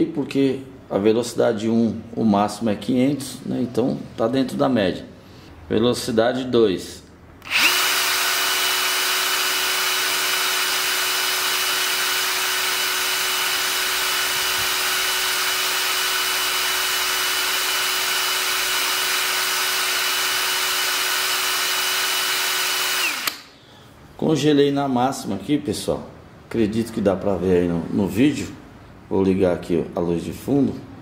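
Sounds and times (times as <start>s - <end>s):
cordless drill motor whining: 7.4s - 23.5s.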